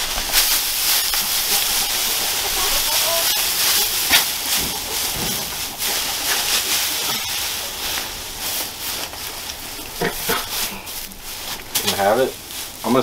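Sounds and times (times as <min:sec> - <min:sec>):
dry straw rustling and crackling: 0:00.0 - 0:13.0.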